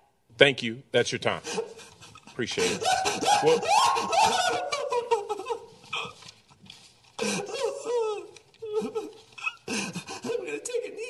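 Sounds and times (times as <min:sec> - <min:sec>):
people laughing: 0:01.4 - 0:06.0, 0:07.2 - 0:10.8.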